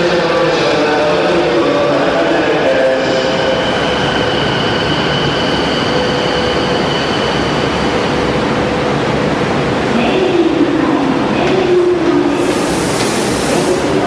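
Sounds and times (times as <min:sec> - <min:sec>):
electric train braking to a stop: 0:02.9 - 0:08.2.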